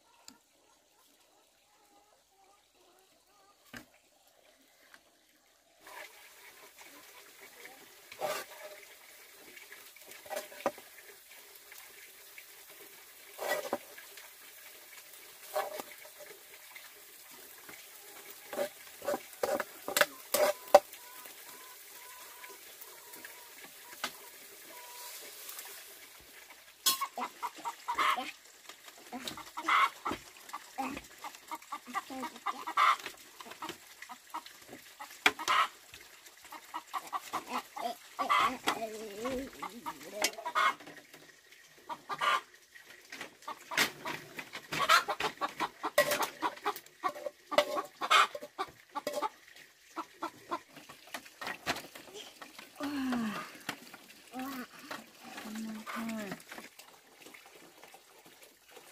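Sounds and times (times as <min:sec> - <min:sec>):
ladle scraping in a wok: 0:08.1 - 0:08.8, 0:13.3 - 0:13.9, 0:18.4 - 0:21.3, 0:47.1 - 0:47.9, 0:49.0 - 0:49.3
chickens clucking: 0:18.0 - 0:25.2, 0:26.9 - 0:28.4, 0:29.1 - 0:35.8, 0:36.5 - 0:41.1, 0:41.8 - 0:52.6.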